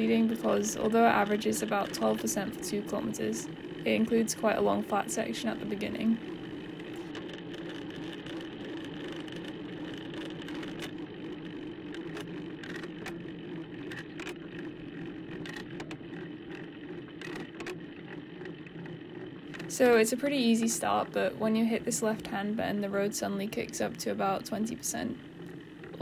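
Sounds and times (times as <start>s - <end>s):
bicycle tyres and drivetrain whirring: 0.0s - 26.0s
bicycle clicks and rattles: 6.2s - 19.8s.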